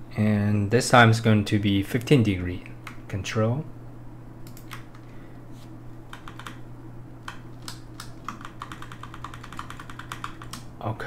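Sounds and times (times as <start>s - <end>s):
keyboard keys clicking: 6.1s - 6.6s, 7.2s - 10.7s.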